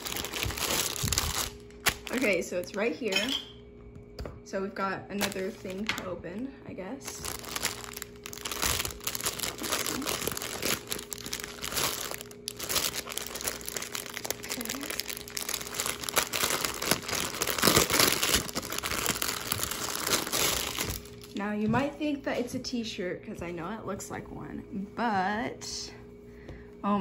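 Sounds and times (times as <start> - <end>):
plastic bag crinkling: 0.0 - 3.2, 5.2 - 6.3, 7.0 - 21.4.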